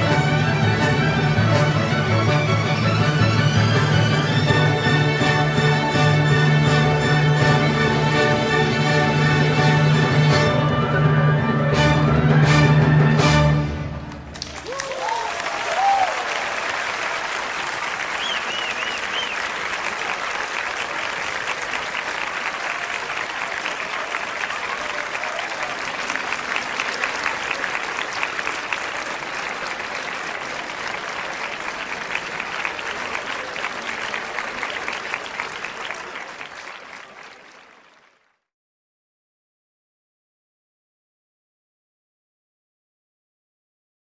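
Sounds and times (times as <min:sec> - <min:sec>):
large crowd applauding: 0:00.0 - 0:10.6, 0:14.0 - 0:38.5
voices cheering: 0:14.5 - 0:36.8.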